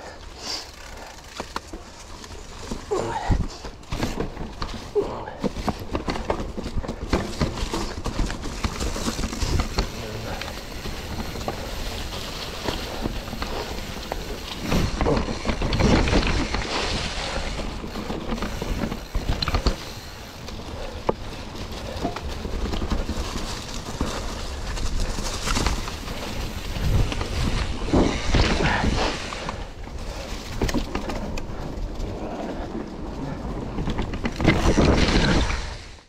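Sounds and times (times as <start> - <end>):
bike rattling: 0.0 - 36.0
bike tyres crunching over rock: 0.0 - 36.0.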